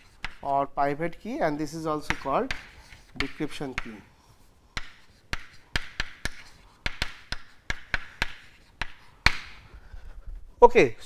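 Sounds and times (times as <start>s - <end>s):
chalk tapping on chalkboard: 0.0s - 0.5s, 1.8s - 10.1s.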